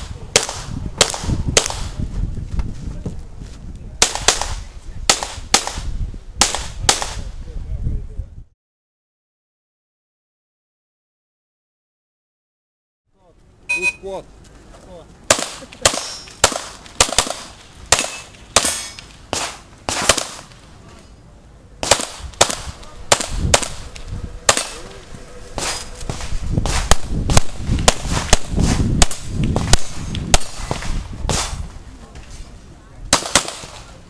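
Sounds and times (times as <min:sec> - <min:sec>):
pistol shots: 0:15.3 - 0:20.6, 0:21.8 - 0:24.9, 0:25.6 - 0:31.6, 0:33.1 - 0:33.9.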